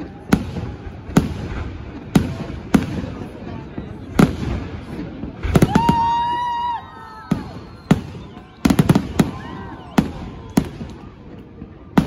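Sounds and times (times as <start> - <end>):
crowd cheering: 0.0 - 1.6, 5.4 - 12.0
fireworks bursting: 0.0 - 12.0.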